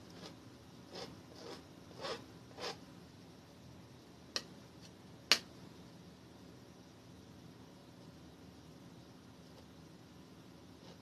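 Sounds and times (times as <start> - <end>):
palette knife scraping canvas: 0.1 - 2.8.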